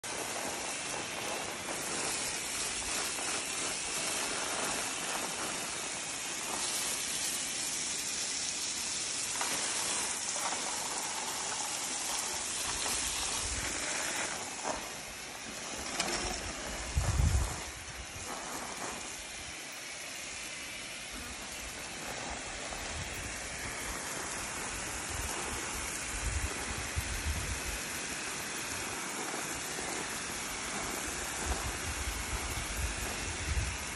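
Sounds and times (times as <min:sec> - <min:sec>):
hose spraying water: 0:00.0 - 0:33.9.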